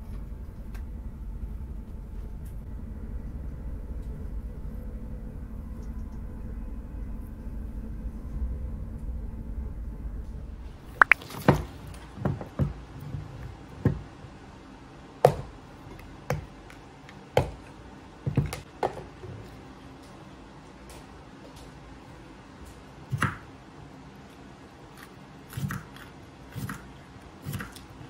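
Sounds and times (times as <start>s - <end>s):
low steady rumble: 0.0s - 18.7s.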